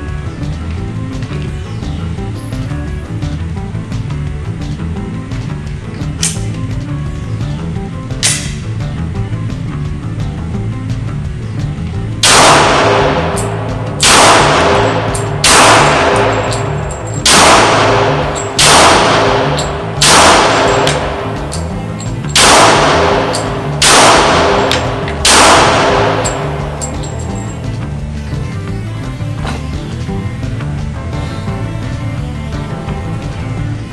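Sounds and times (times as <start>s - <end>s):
background music: 0.0s - 33.9s
pistol shots echoing indoors: 12.2s - 21.7s, 22.3s - 27.6s.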